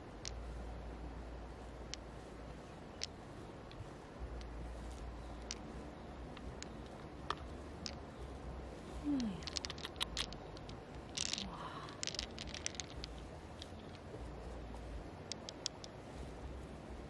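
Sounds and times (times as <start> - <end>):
pearls clicking together: 0.2 - 0.5, 1.8 - 14.1, 15.2 - 16.0.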